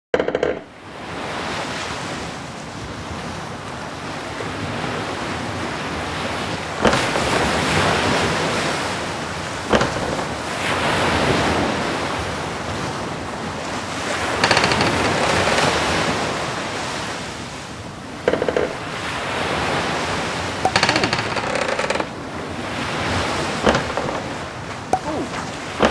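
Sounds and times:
sea waves surf: 0.2 - 25.9
sharp clicks: 20.7 - 22.1.

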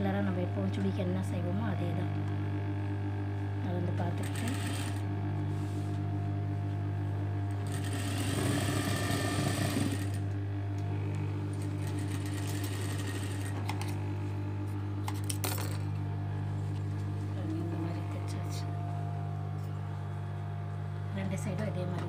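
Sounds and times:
sewing machine stitching: 4.2 - 5.0, 7.6 - 10.2, 11.1 - 14.0.

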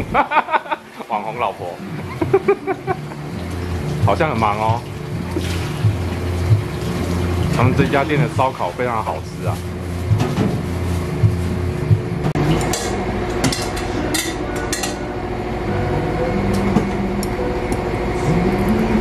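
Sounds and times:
steady background hum: 0.0 - 19.0
dishes and utensils clinking: 12.5 - 15.0.

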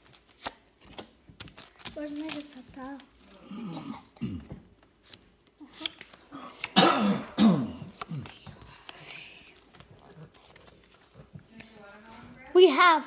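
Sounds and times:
person making vocal sounds: 3.3 - 4.4.

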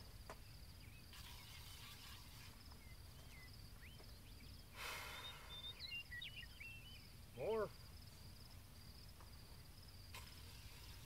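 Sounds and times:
short insect chirps: 0.1 - 11.0
insect trilling: 1.0 - 7.8.

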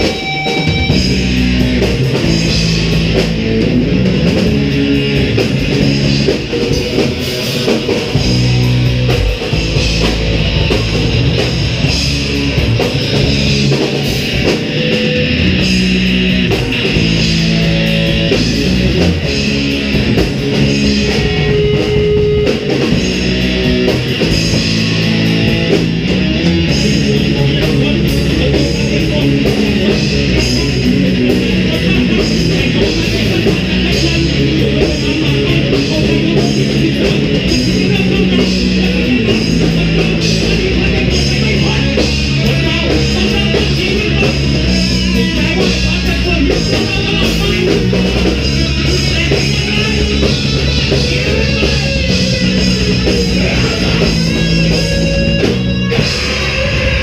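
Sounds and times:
live rock band playing: 0.0 - 57.0
vocalist singing into microphone: 53.1 - 54.8.

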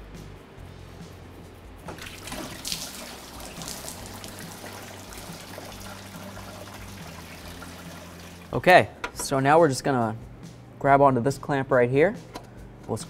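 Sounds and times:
coolant pouring into drain pan: 1.9 - 8.6.

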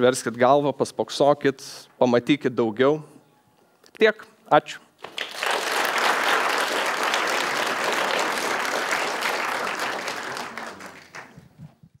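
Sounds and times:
audience applauding: 5.0 - 11.5.

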